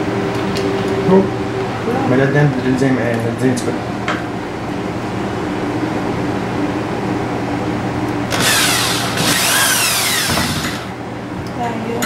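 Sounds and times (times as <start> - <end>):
electric drill driving screw into wood: 8.3 - 10.9.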